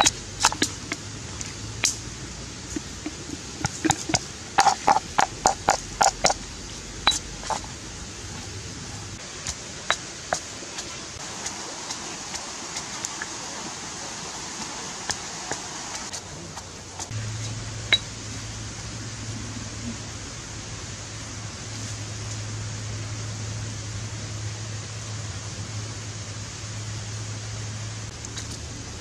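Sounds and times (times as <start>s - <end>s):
steady hiss: 0.0s - 29.0s
stone pestle pounding in mortar: 2.8s - 6.4s.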